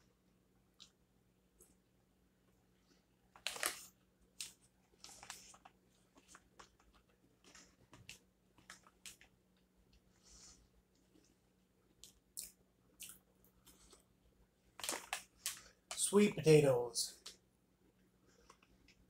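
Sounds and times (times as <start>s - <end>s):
plastic bag crinkling: 3.4s - 9.3s, 14.7s - 16.1s.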